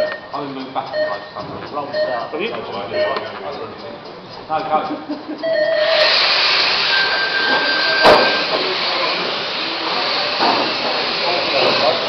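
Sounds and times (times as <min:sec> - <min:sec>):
rc cars motors hissing: 0:05.7 - 0:12.0
sharp knock: 0:08.0 - 0:08.6, 0:10.4 - 0:11.0.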